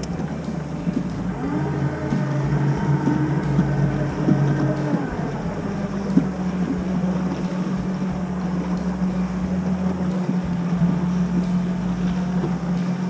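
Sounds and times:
outboard motor running: 0.0s - 13.0s
wind buffeting microphone: 0.0s - 13.0s.

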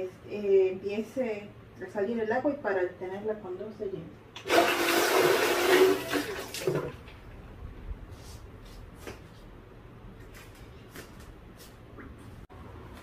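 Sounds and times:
water gushing into metal mug: 4.4s - 6.9s.

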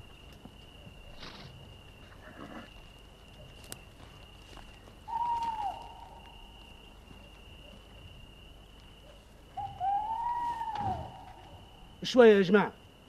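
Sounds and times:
owl hooting: 5.0s - 6.8s, 9.5s - 12.1s.

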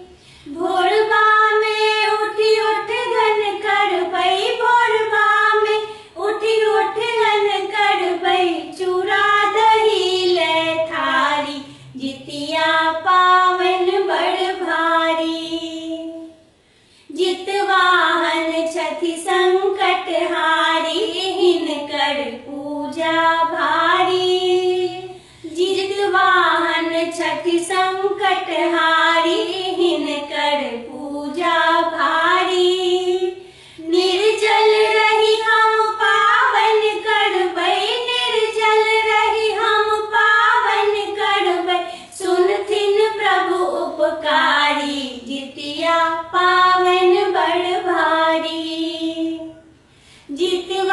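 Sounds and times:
high voices singing folk song: 17.1s - 50.9s.

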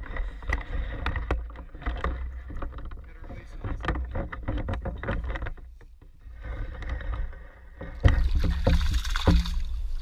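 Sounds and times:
loud water splashing: 8.2s - 10.0s.

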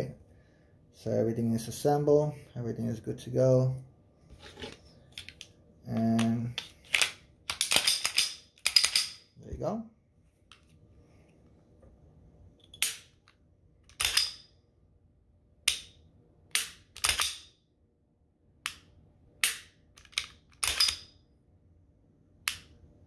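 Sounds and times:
pistol slide racking: 13.9s - 14.4s, 19.4s - 21.1s.

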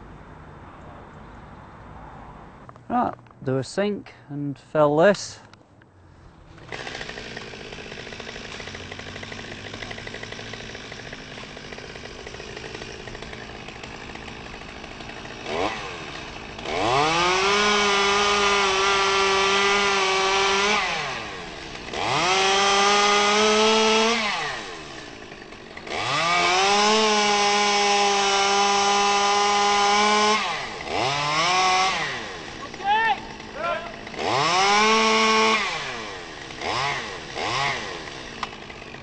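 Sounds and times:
chainsaw idling and revving: 6.4s - 39.0s.

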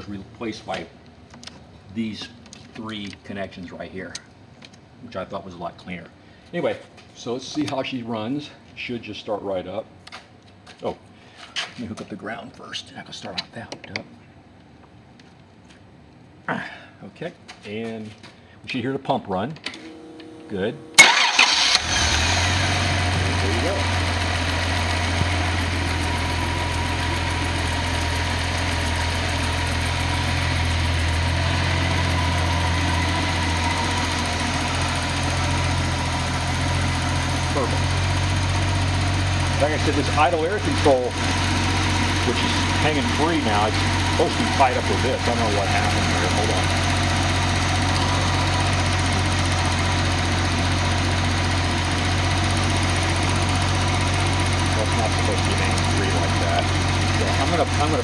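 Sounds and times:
car engine idling: 20.9s - 58.0s.

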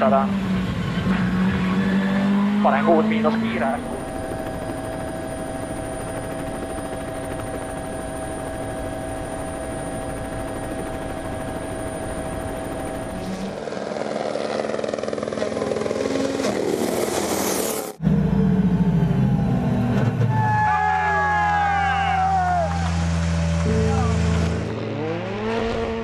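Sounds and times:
rally car engine: 0.0s - 4.0s, 22.4s - 26.0s
helicopter drone with whine: 0.0s - 26.0s.

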